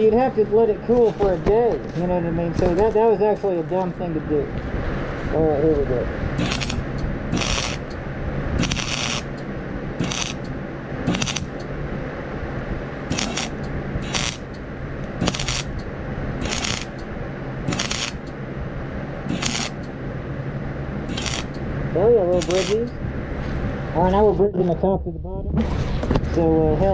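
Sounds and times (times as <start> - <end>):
welding arc crackling: 2.5 - 3.8, 6.4 - 11.7, 13.0 - 18.4, 19.2 - 20.0, 21.0 - 23.0
welder humming: 6.3 - 11.8, 12.8 - 23.2.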